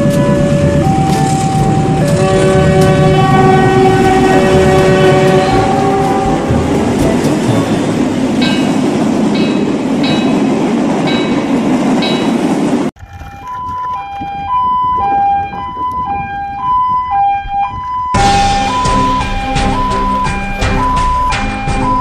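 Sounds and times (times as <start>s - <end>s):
two-tone siren: 0.0s - 6.6s, 13.3s - 22.0s
train rumbling: 0.0s - 22.0s.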